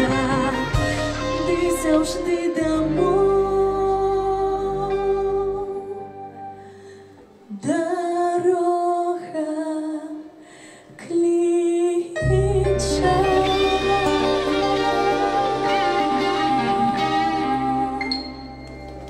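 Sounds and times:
live band playing: 0.0 - 4.3, 12.6 - 19.0
woman singing into a microphone: 0.0 - 6.6, 7.4 - 18.7.

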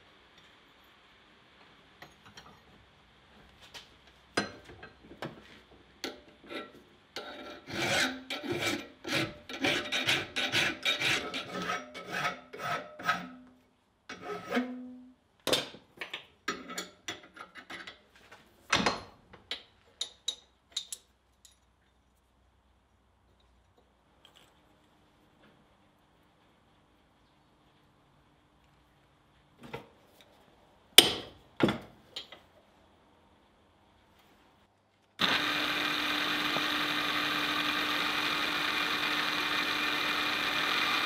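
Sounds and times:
file scraping metal: 6.1 - 13.5, 14.1 - 14.9.

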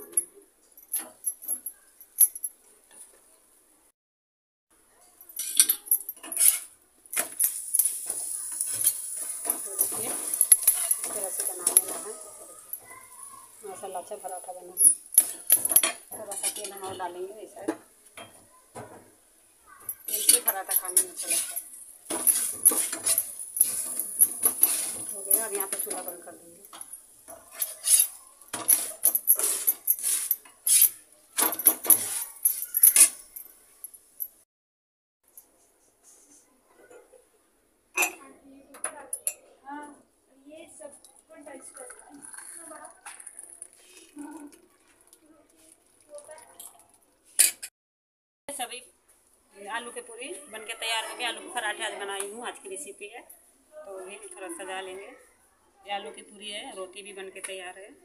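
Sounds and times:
metal spatula scraping iron griddle: 5.4 - 12.8, 15.2 - 17.0, 20.1 - 26.4, 27.3 - 31.0, 31.7 - 33.2
flatbread sizzling: 6.2 - 17.2, 20.1 - 32.5.

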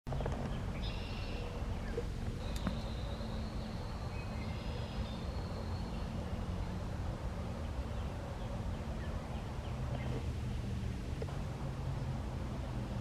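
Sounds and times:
faint high-pitched bird calls: 0.1 - 6.9
low rumble: 0.1 - 13.0.

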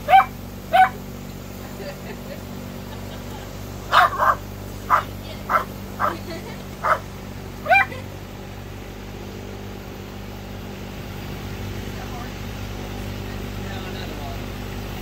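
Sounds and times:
dogs barking: 0.0 - 1.1, 3.0 - 8.1
drone motors humming: 0.0 - 15.0.

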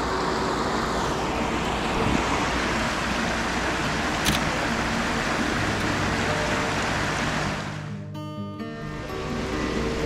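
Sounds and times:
river water rushing over rapids: 0.0 - 7.9.

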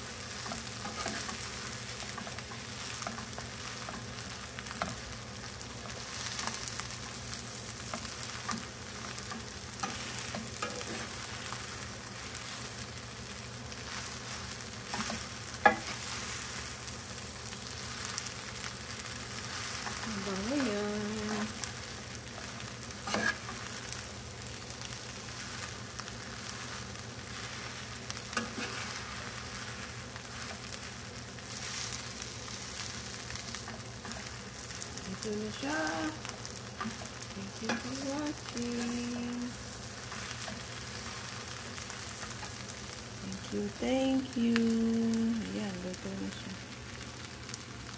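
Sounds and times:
rice sizzling in a pan: 0.0 - 47.9
utensils scraping and clicking on pan: 0.3 - 5.0, 7.8 - 11.2, 14.4 - 16.3, 22.4 - 23.8, 28.3 - 29.3.

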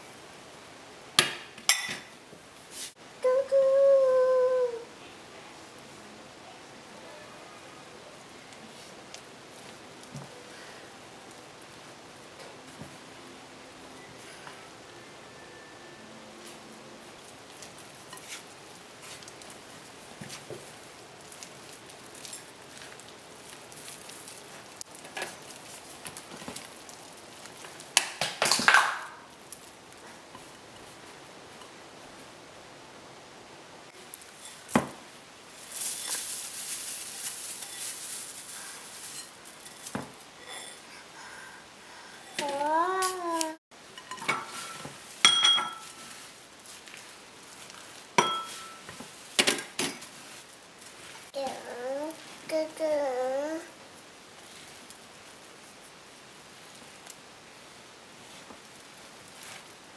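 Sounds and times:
soft scraping of dough: 2.7 - 3.0, 17.5 - 27.8, 58.1 - 59.8.

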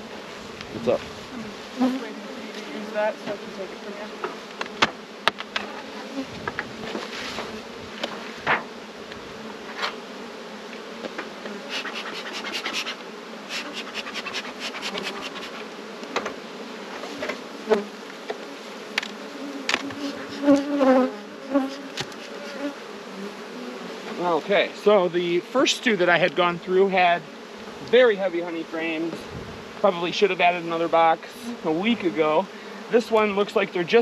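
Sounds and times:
honey bees buzzing: 0.0 - 34.0
wooden hive boxes knocking: 4.2 - 5.8, 13.7 - 16.4, 18.2 - 20.9.

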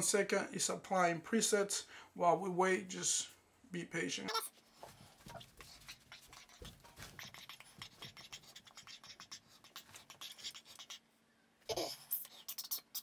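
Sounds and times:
scratching and light tapping: 4.8 - 11.0.

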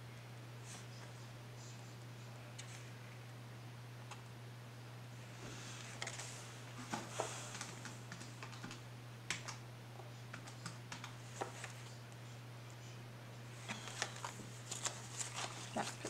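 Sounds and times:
steady low hum: 0.0 - 16.0
paper rustling: 5.7 - 7.8, 13.6 - 16.0.

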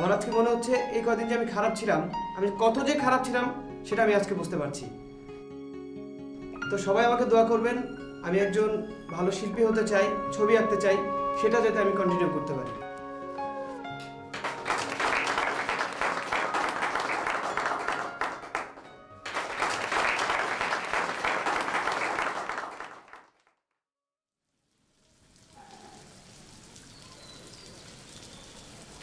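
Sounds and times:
audience applauding: 12.6 - 23.5.

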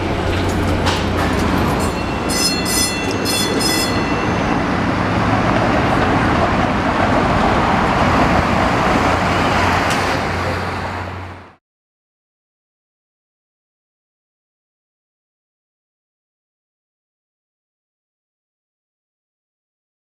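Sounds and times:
streetcar rumbling on track: 0.0 - 11.6.

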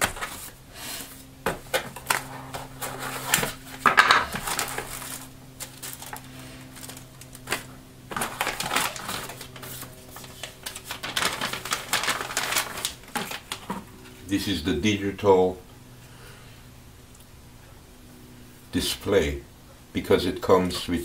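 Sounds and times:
plastic bag crinkling: 1.9 - 14.1.

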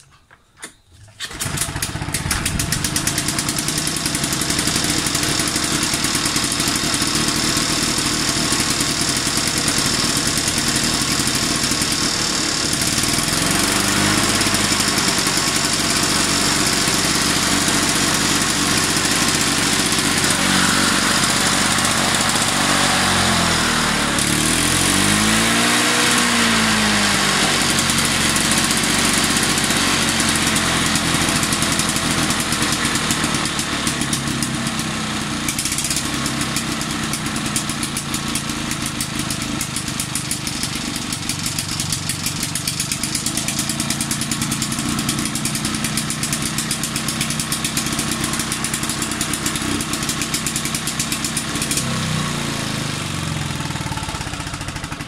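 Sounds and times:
lawnmower engine running: 0.0 - 55.0.

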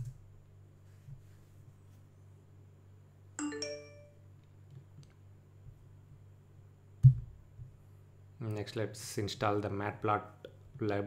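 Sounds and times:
two-note computer alert chime: 3.4 - 4.2.

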